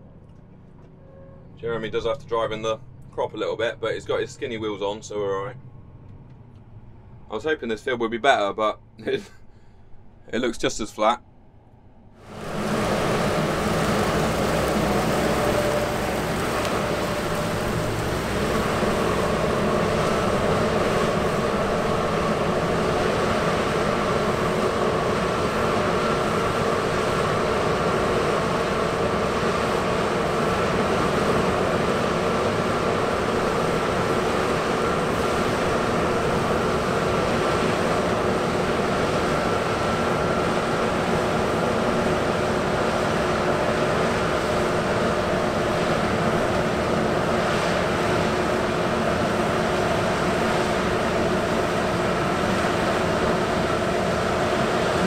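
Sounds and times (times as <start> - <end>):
combine harvester engine drone: 0.0 - 55.0
thin steady whine: 0.0 - 55.0.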